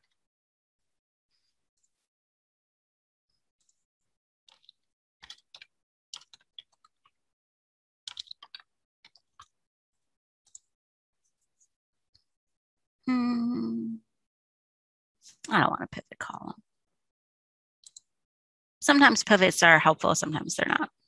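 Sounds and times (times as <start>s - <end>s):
keyboard typing: 4.5s - 7.1s, 8.1s - 9.6s.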